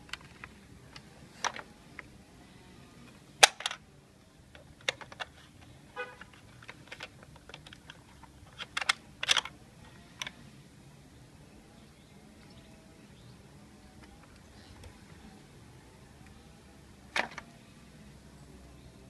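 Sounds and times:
plastic parts clicking and snapping: 0.0 - 2.1, 3.1 - 3.8, 4.5 - 9.6, 10.2 - 10.4, 17.1 - 17.5.

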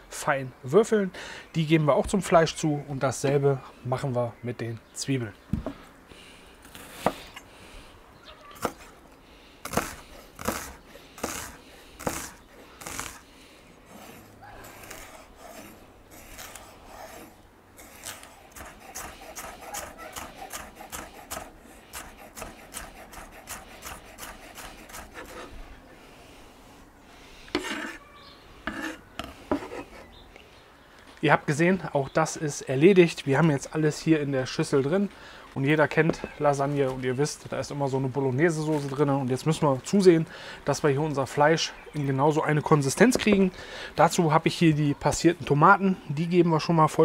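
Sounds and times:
knife chopping on wooden board: 8.6 - 8.9, 9.7 - 13.2, 18.6 - 25.5.

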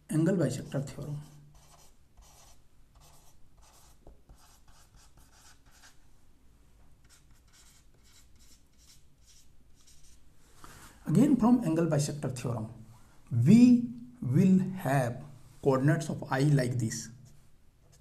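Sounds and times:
marker pen writing: 1.2 - 6.0, 7.0 - 10.2.

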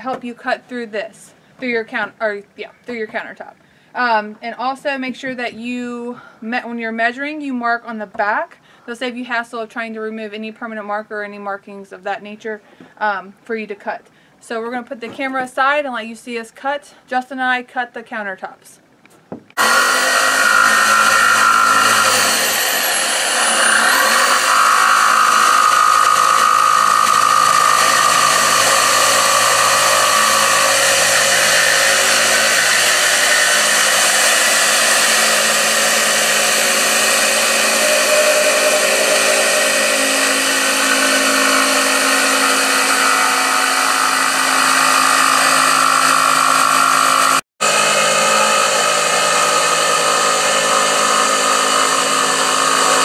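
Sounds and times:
jigsaw cutting countertop: 19.6 - 53.0.

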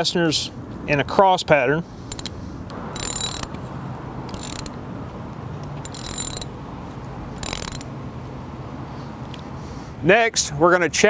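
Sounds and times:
hand ratchet clicking: 2.1 - 2.4, 3.0 - 3.6, 4.3 - 4.8, 5.8 - 6.5, 7.4 - 7.9.

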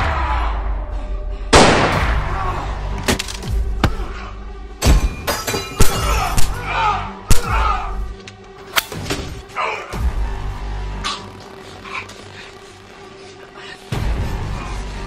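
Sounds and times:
low background music: 0.0 - 15.0
men grunting and crying in pain: 5.9 - 8.1.

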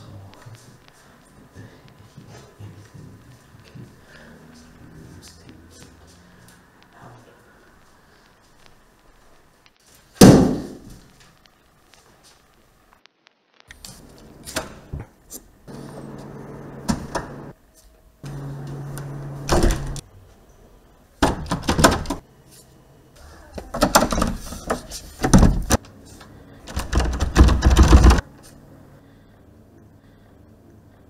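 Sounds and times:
steady low hum: 13.8 - 31.0
door rattling and banging: 21.2 - 22.2, 23.7 - 25.8, 26.7 - 28.2.

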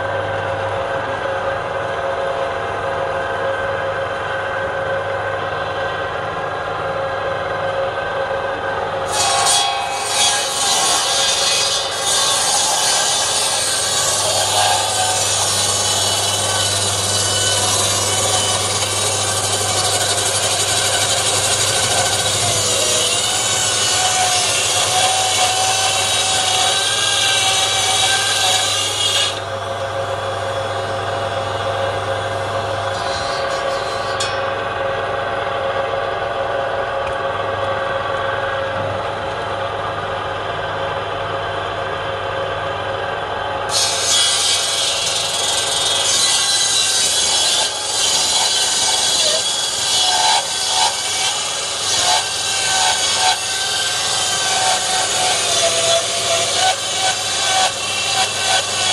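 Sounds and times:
saw blade whining: 8.7 - 34.9, 43.7 - 58.9
table saw cutting log: 9.0 - 34.8, 43.7 - 58.9.

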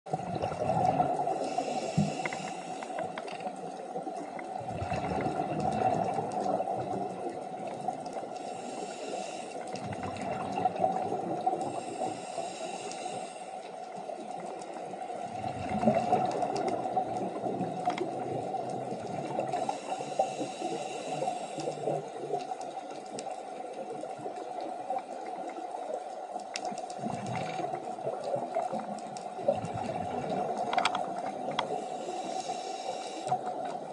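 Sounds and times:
rumbling bursts of bubbles: 0.1 - 1.4, 4.6 - 8.1, 9.7 - 11.8, 15.2 - 19.6, 27.0 - 31.5
steady underwater drone: 0.1 - 33.9
underwater bubbling and gurgling: 0.1 - 33.9.

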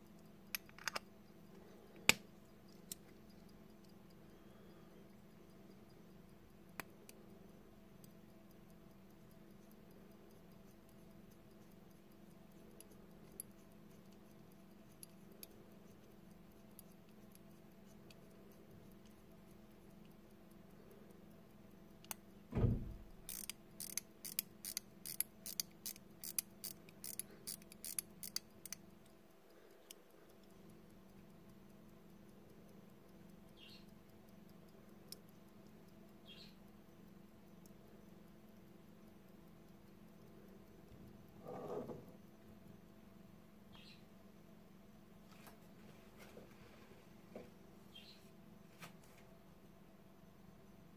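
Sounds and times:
pocket watch ticking: 0.0 - 42.4
watch crown clicking: 2.1 - 22.3, 22.9 - 42.3
handling thump: 22.5 - 23.1.

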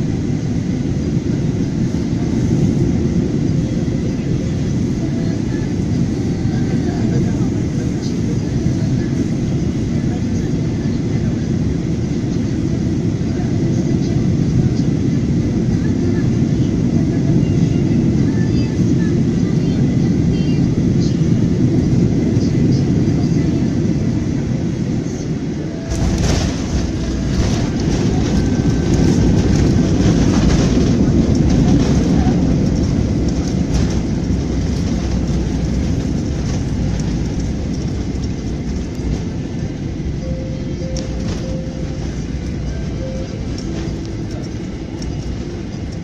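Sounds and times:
airplane engines and airflow rumble: 0.0 - 46.0
wheels rumbling on runway: 0.0 - 46.0
airplane touchdown jolt: 25.9 - 39.6.

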